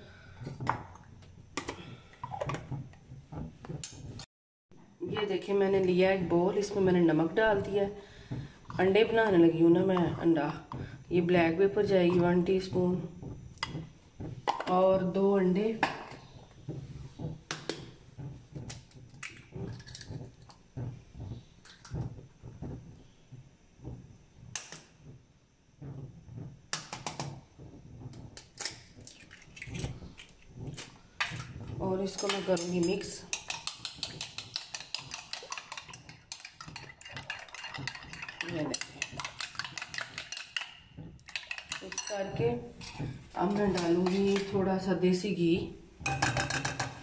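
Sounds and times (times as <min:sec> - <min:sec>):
eggs cracking against glass bowl: 0:32.3 - 0:42.2.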